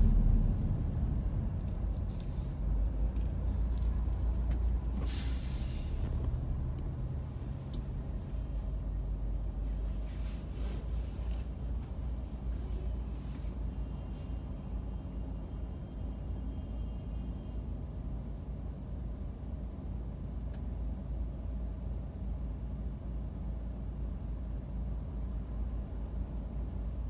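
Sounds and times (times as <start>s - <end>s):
car idling: 0.0s - 4.9s
surrounding traffic: 0.0s - 27.0s
brief hiss: 5.0s - 6.0s.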